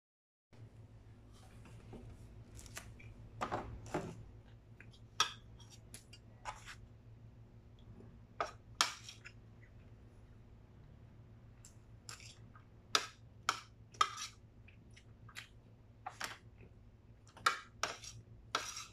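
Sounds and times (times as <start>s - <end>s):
steady low hum: 0.6s - 18.9s
spoon scraping ceramic plate: 12.0s - 12.5s, 13.5s - 14.4s, 17.8s - 18.9s.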